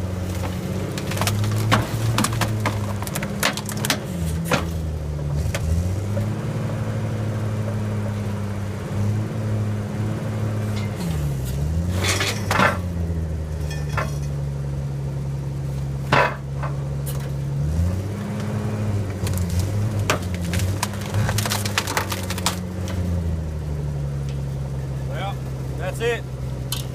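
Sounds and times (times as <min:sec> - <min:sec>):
engine running under load: 0:00.0 - 0:26.9
wood cracking and falling: 0:00.1 - 0:05.8, 0:11.9 - 0:13.0, 0:16.1 - 0:17.4, 0:19.1 - 0:23.2.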